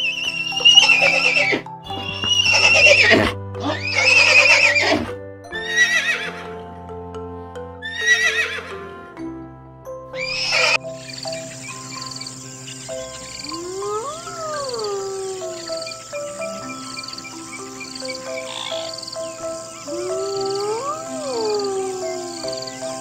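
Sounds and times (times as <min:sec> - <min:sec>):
horse whinnying: 0:00.0 - 0:06.5, 0:07.8 - 0:08.8, 0:10.2 - 0:10.8
background music: 0:00.0 - 0:23.0.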